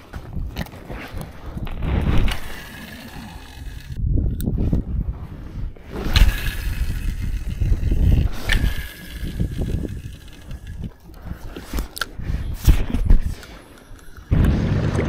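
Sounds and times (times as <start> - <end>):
wind buffeting microphone: 0.0 - 13.5, 14.3 - 15.0
sharp reel clicks: 1.8 - 4.5, 5.9 - 14.3
fishing reel turning: 2.2 - 4.0, 5.9 - 12.2.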